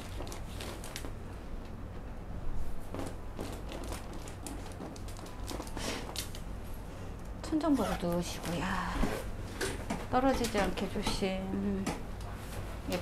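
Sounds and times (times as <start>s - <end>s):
low steady hum: 0.0s - 13.0s
soft rustling and shuffling: 12.2s - 13.0s.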